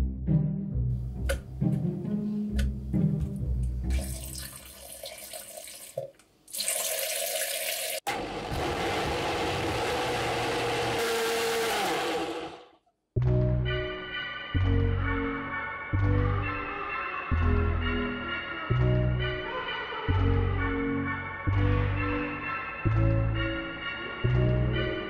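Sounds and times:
background music: 0.0s - 5.0s, 13.2s - 25.0s
blender motor whining: 8.1s - 12.8s.

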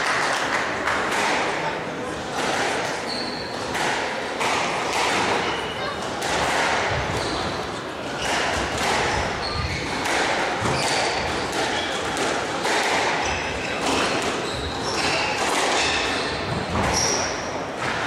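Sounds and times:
squash ball hit by rackets: 0.9s - 1.6s, 2.2s - 18.0s
shoes squeaking on court floor: 3.0s - 3.7s, 6.9s - 12.0s, 13.2s - 17.5s.

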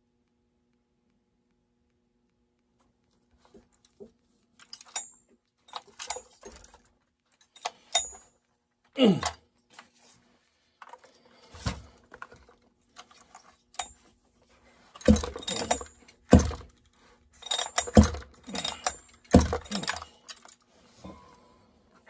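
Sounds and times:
chainsaw recoil starter pulls: 15.0s - 16.7s, 17.4s - 20.5s.

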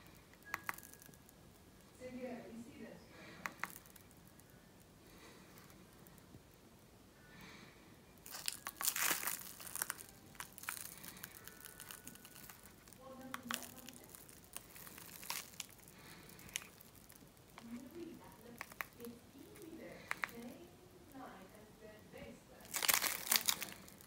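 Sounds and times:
plastic bag crinkling: 0.3s - 1.3s, 3.2s - 4.5s, 8.2s - 21.4s, 22.6s - 24.0s.

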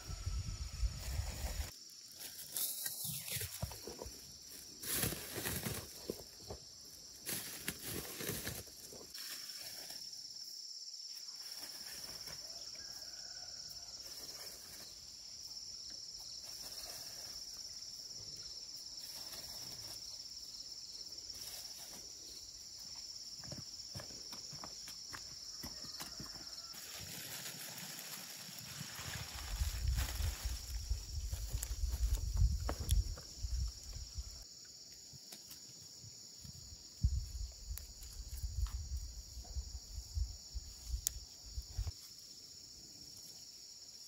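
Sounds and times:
high-pitched insect drone: 0.0s - 6.2s
crunching of dry soil: 0.8s - 10.2s, 21.1s - 34.4s.

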